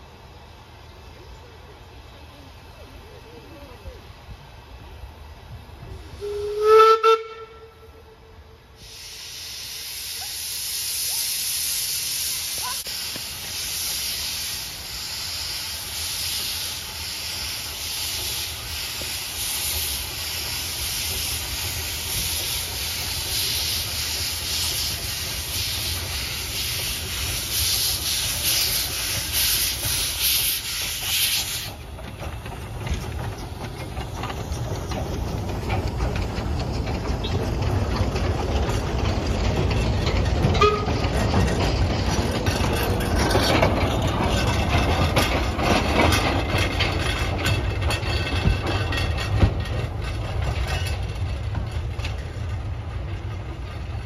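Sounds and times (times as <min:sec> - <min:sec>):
locomotive steam hissing: 0:00.0 - 0:54.0
train rolling rumble: 0:00.0 - 0:54.0
steam whistle blast: 0:06.2 - 0:09.4.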